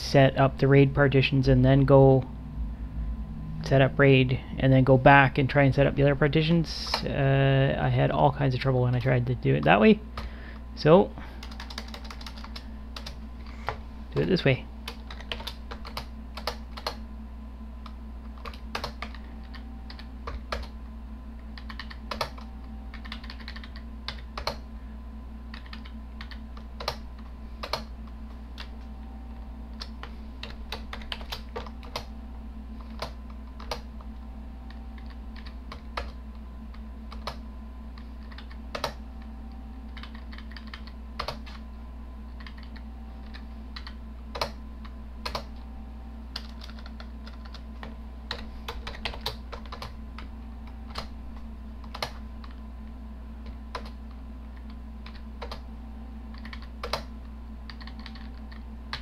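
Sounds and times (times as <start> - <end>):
steady low hum: 0.0 - 59.0
computer keyboard keystrokes: 11.4 - 13.2, 14.9 - 17.0, 18.4 - 20.7, 21.6 - 24.6, 25.5 - 27.0, 27.6 - 27.9, 29.8 - 32.1, 32.8 - 33.9, 37.1 - 37.4, 38.0 - 39.0, 40.0 - 41.6, 42.4 - 44.6, 46.4 - 50.3, 51.8 - 52.6, 53.7 - 54.0, 54.6 - 55.6, 56.3 - 57.1, 57.7 - 59.0.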